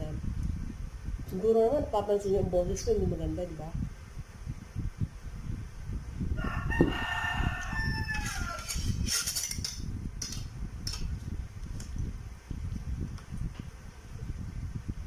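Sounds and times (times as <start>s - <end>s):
rooster crowing: 6.3s - 9.0s.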